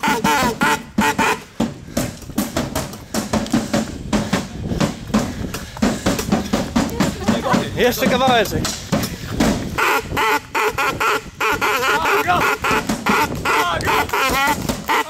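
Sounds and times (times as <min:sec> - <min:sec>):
running footsteps on pavement: 0:00.0 - 0:15.0
heavy panting breaths: 0:01.4 - 0:07.8, 0:08.8 - 0:09.8.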